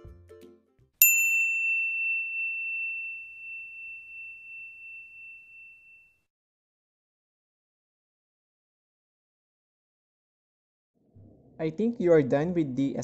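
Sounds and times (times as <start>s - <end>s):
high bell ding: 1.0s - 6.2s.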